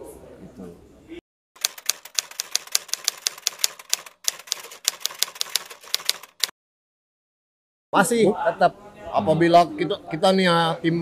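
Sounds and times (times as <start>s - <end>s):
typewriter key clicks: 1.6s - 6.5s.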